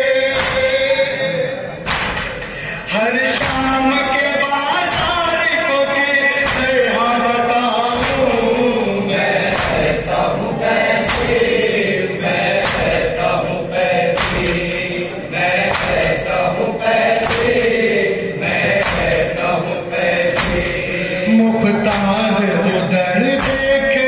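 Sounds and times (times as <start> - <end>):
men chanting in unison: 0.0 - 24.0
chest-beating slaps: 0.3 - 0.9, 1.8 - 2.6, 3.3 - 3.8, 4.9 - 5.2, 6.4 - 6.8, 7.9 - 8.5, 9.4 - 11.8, 12.4 - 17.8, 18.6 - 20.9, 21.8 - 22.3, 23.3 - 23.8.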